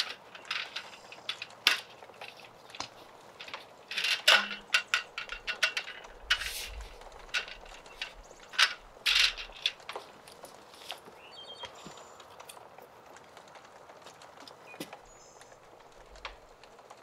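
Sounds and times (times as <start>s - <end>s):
camp table clattering: 0.0s - 11.7s
wood fire crackling: 0.0s - 17.0s
footsteps on gravel: 6.4s - 12.1s.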